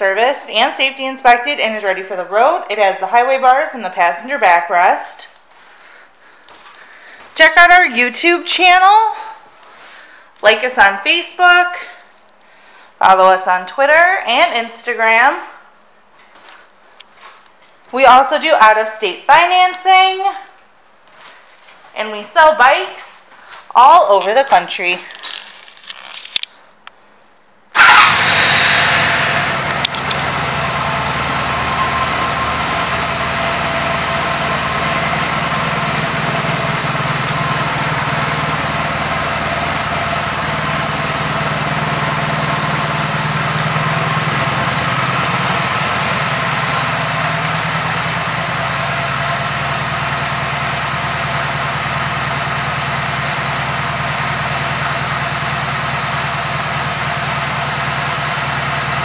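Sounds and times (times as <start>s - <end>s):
motorcycle engine idling: 27.8s - 59.0s.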